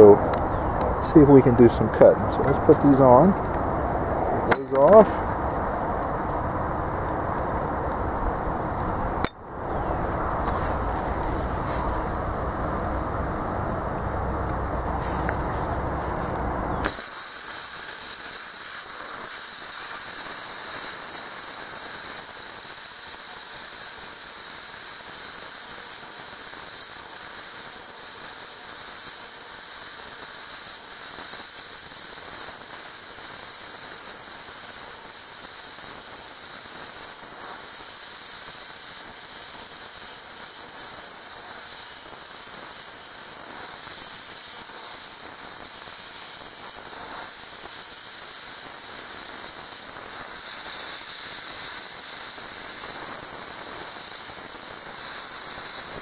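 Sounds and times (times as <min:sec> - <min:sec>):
plasma cutter hissing: 0:16.8 - 0:56.0.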